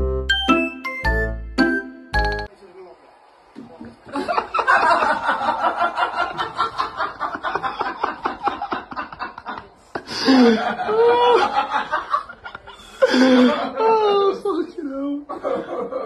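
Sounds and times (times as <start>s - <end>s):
person laughing: 7.4s - 16.0s.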